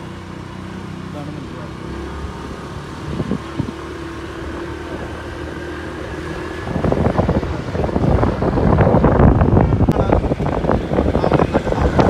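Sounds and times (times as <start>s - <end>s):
motorbike engine running: 0.0s - 12.0s
wind buffeting microphone: 2.9s - 12.0s.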